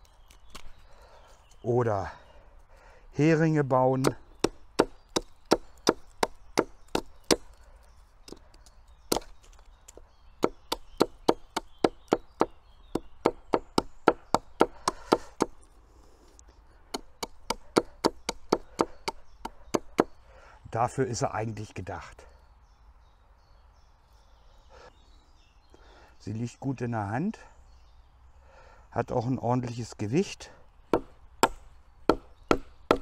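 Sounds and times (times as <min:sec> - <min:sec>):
hatchet chopping wood: 0:04.0 - 0:07.6, 0:08.3 - 0:15.6, 0:16.9 - 0:20.2, 0:30.9 - 0:33.0.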